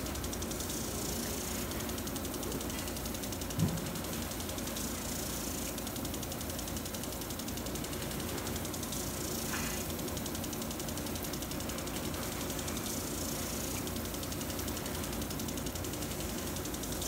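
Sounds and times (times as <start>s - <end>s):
water spray hissing: 0.0s - 5.9s, 7.9s - 17.0s
sprinkler drive ticking: 0.0s - 17.0s.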